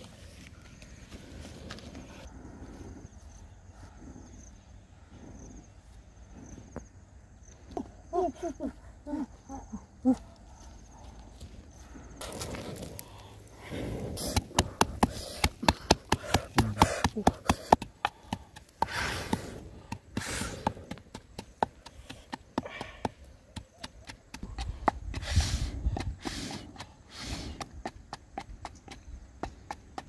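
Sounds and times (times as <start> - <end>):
pestle pounding in mortar: 14.3 - 25.2.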